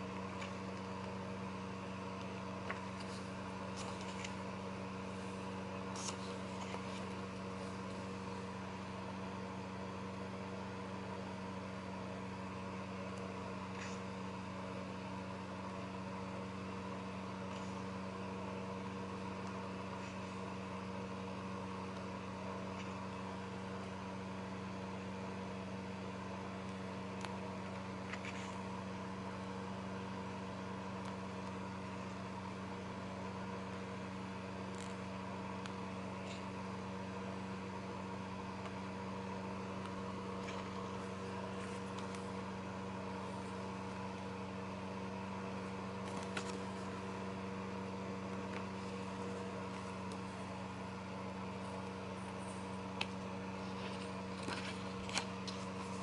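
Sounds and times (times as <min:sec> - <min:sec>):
steady motor hum: 0:00.0 - 0:56.0
paper pages turning: 0:02.6 - 0:04.4, 0:05.9 - 0:08.0, 0:27.6 - 0:28.6, 0:40.3 - 0:42.3, 0:46.0 - 0:46.9, 0:51.6 - 0:56.0.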